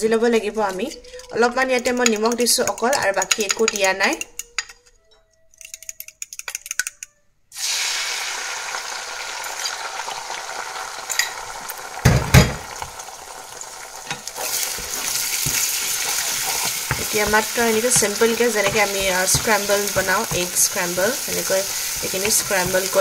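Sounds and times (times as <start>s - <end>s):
eggs sizzling in oil: 7.5s - 23.0s.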